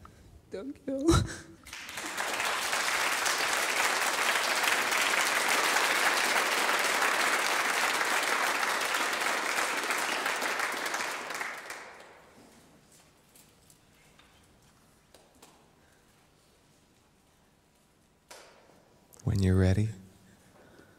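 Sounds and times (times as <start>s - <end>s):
students clapping: 1.6s - 12.4s.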